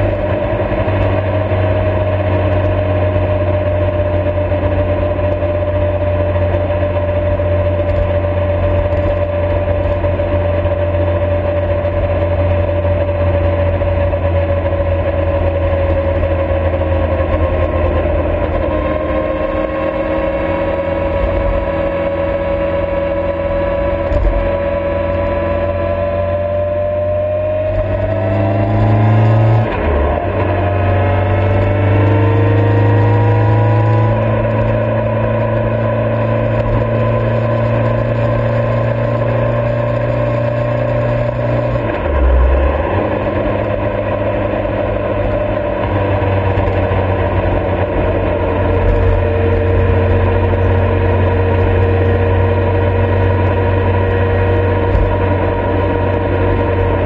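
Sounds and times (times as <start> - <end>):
motorcycle engine accelerating: 0.0 - 57.0.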